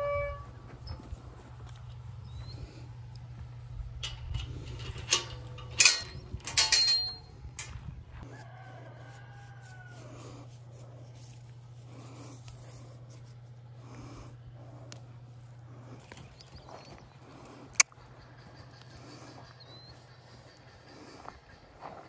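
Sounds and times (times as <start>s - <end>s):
rooster crowing: 8.2s - 10.5s.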